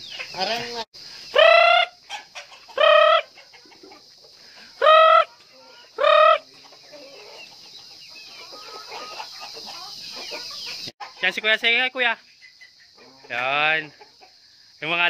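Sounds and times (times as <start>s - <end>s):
chicken squawking: 0.0s - 4.0s, 4.6s - 7.6s, 8.3s - 11.2s
chickens clucking: 0.0s - 15.0s.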